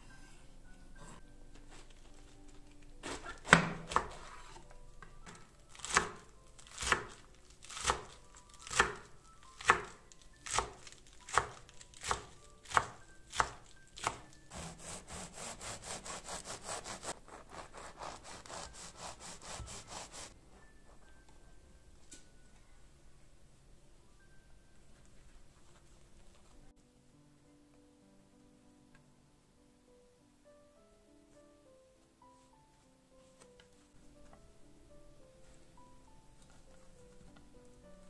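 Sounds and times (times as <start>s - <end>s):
knife chopping lettuce on board: 3.0s - 4.6s, 5.3s - 20.3s.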